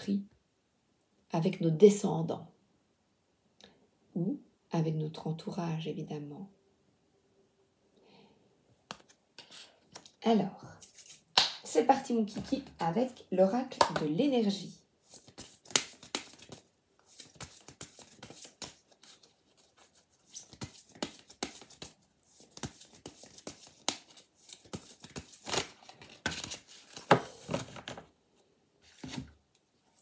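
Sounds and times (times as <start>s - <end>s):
cards being shuffled: 10.8s - 11.4s, 15.0s - 28.1s, 28.8s - 29.3s.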